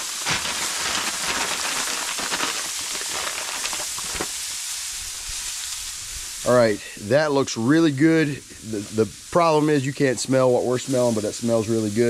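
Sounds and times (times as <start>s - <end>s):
fat crackling and popping: 0.0s - 6.7s
meat sizzling on a grill: 0.0s - 12.0s.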